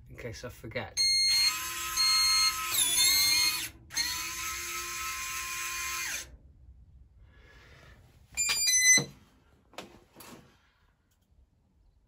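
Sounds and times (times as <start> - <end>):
electric motor whirring: 1.4 - 6.3.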